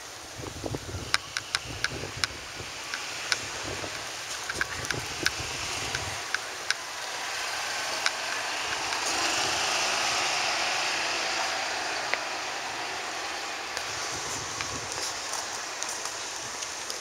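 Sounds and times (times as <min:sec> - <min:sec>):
outdoor rushing noise: 0:00.0 - 0:17.0
faint footstep clicks: 0:13.8 - 0:17.0.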